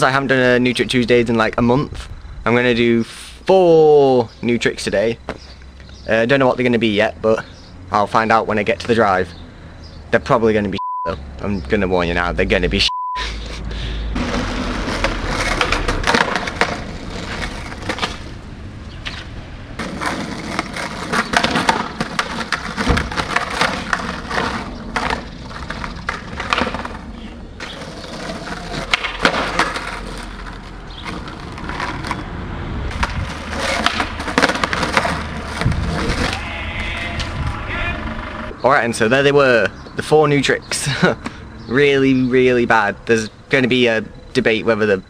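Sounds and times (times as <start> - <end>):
skateboard wheels rolling on asphalt: 4.2 - 10.6, 13.7 - 45.0
skateboard deck pops and clacks: 14.2 - 18.3, 19.0 - 27.0, 27.6 - 32.2, 32.9 - 36.4.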